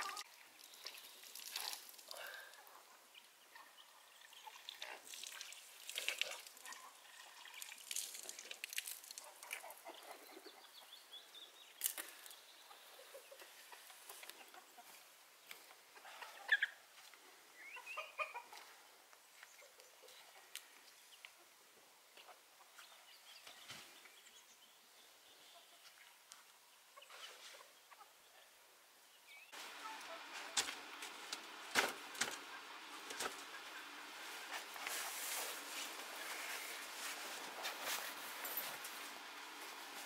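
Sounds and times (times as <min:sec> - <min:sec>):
chickens clucking: 0:09.2 - 0:11.2, 0:12.6 - 0:23.0, 0:26.9 - 0:28.6, 0:29.6 - 0:36.8.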